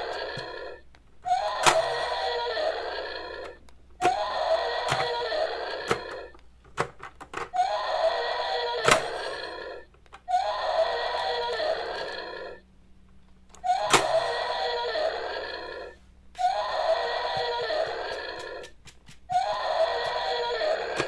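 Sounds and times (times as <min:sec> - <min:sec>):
plastic toys knocking: 0:05.8 - 0:07.6.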